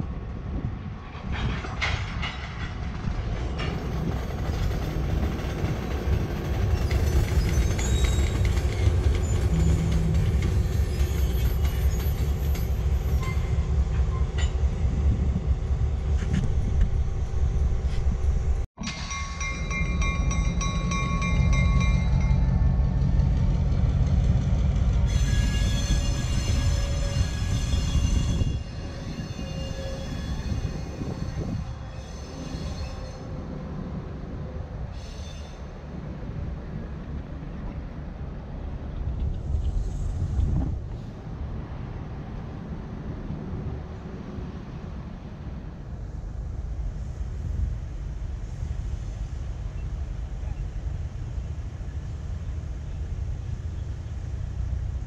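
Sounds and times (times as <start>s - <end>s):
train wheels rumbling on rail: 0.0s - 55.0s
high-pitched wheel squeals: 13.2s - 14.5s, 25.1s - 33.5s.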